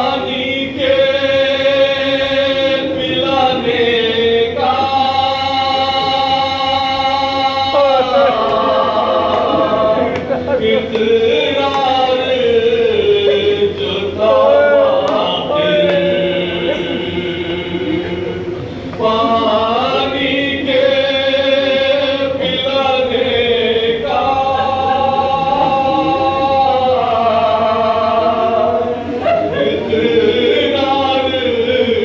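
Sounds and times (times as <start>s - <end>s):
man chanting a lament: 0.0s - 18.5s.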